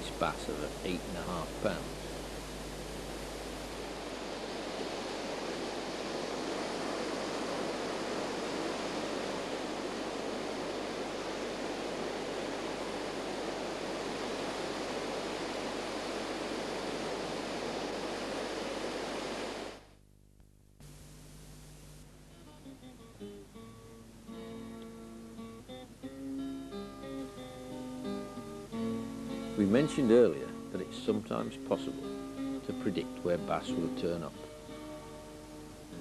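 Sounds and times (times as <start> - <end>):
waves breaking: 0.0 - 19.9.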